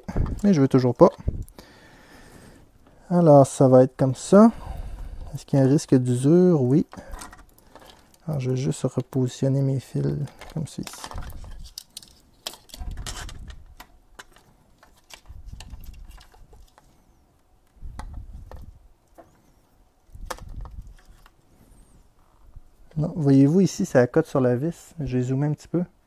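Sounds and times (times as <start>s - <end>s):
hands handling wires: 2.8s - 21.5s.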